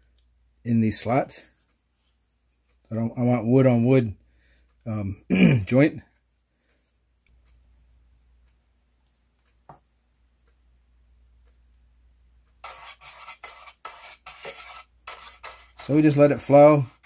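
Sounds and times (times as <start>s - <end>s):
brush scratching on plywood: 12.6s - 17.0s.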